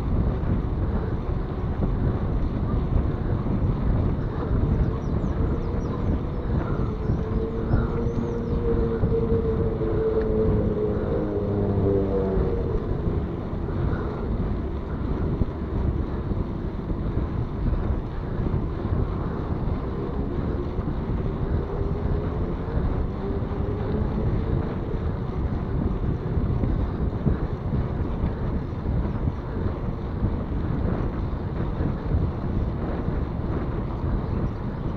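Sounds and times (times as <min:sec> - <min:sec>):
tyre and road rumble: 0:00.0 - 0:34.9
wind buffeting microphone: 0:00.0 - 0:34.9
engine tone: 0:04.9 - 0:16.2.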